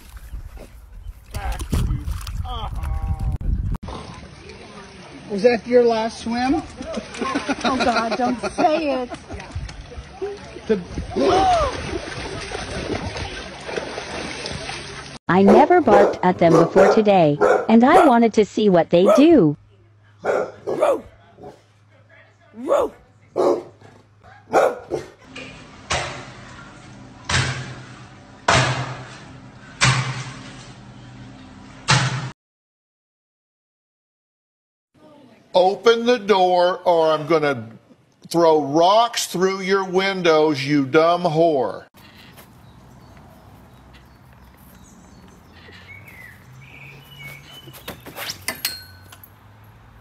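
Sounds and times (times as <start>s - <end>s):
dog barking: 15.5s - 18.2s, 19.0s - 19.3s, 20.2s - 21.6s, 22.6s - 25.2s
birds chirping: 42.0s - 48.5s
metal swing knocking and clattering: 47.9s - 49.4s.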